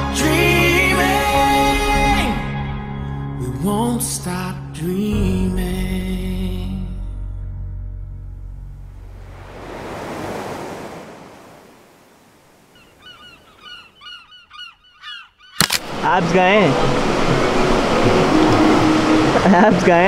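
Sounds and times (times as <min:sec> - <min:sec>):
sea water rushing: 0:09.0 - 0:14.0, 0:15.8 - 0:20.0
short quick bird calls: 0:12.7 - 0:15.7
sharp click: 0:15.6 - 0:15.9.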